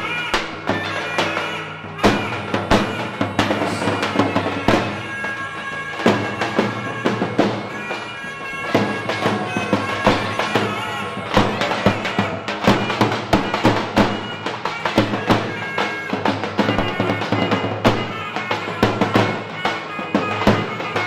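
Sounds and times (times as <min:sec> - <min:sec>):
reedy wind instrument melody: 0:00.0 - 0:21.0.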